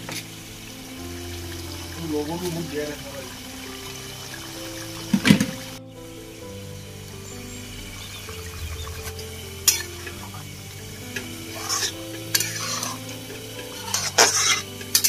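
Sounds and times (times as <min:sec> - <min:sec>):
gravy sizzling and bubbling: 0:00.0 - 0:15.0
spatula scraping metal wok: 0:11.6 - 0:13.0, 0:13.8 - 0:15.0.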